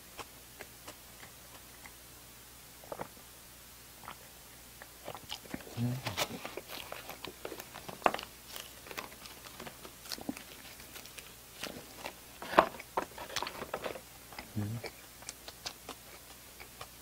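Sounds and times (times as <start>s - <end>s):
eating and swallowing sounds: 0.0s - 2.1s, 2.8s - 3.3s, 3.9s - 17.0s
paper carton crinkling: 5.5s - 14.1s.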